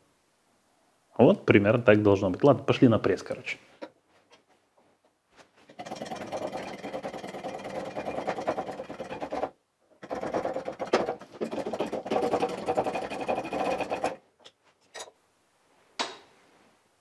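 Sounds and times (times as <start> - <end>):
workshop press whirring: 5.7 - 14.2.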